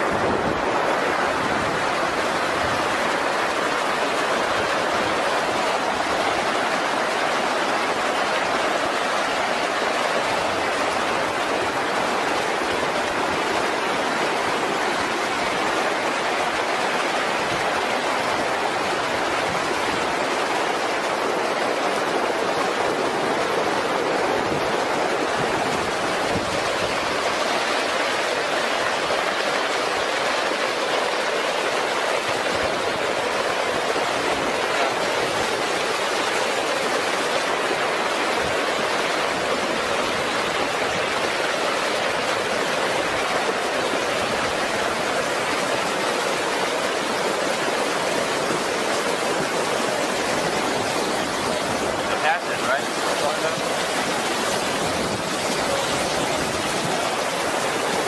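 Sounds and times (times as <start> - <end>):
rushing water and mud: 0.0 - 58.0.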